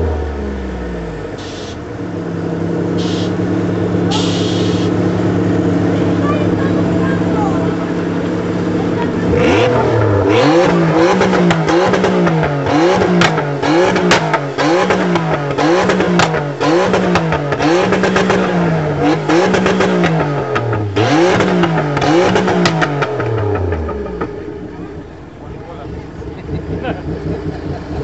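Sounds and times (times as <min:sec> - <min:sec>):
truck engine revving: 0:00.0 - 0:28.0
exhaust pops: 0:08.2 - 0:25.6.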